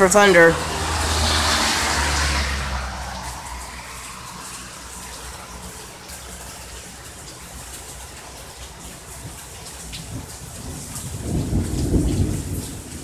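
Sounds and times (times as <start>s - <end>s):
heavy rain: 0.0s - 13.0s
thunder rumbling: 10.0s - 13.0s.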